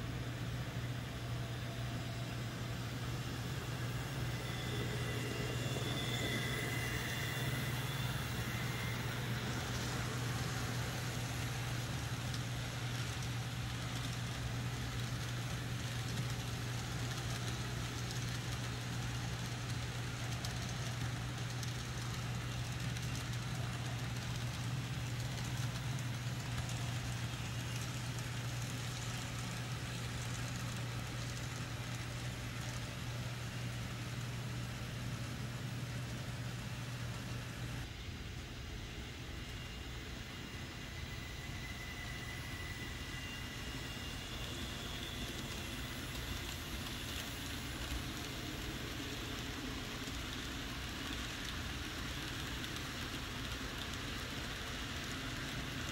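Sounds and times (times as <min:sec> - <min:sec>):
faint high whine: 0:00.0 - 0:55.9
model train locomotive hum: 0:00.0 - 0:55.9
small wheels rolling on rail: 0:00.0 - 0:55.9.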